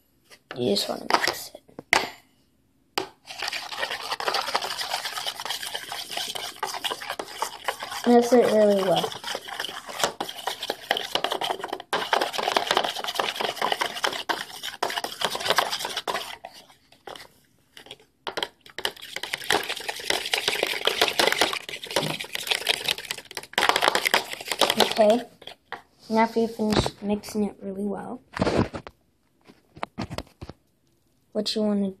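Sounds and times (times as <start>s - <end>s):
fork beating egg in bowl: 3.0s - 25.8s.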